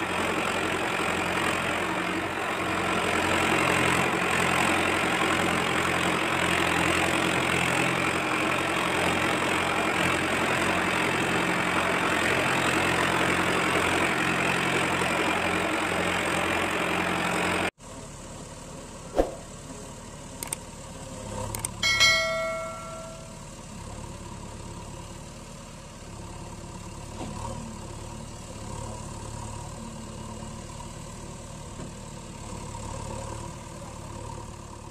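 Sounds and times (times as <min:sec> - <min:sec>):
engine idling: 0:00.0 - 0:34.9
truck engine running: 0:00.0 - 0:34.9
short ringing chime: 0:21.8 - 0:23.5.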